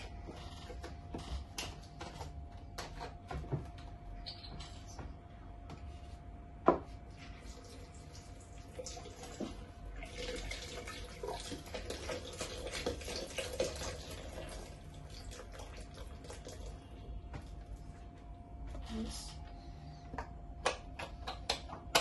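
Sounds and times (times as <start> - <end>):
milk pouring into plastic jug: 7.2 - 17.5.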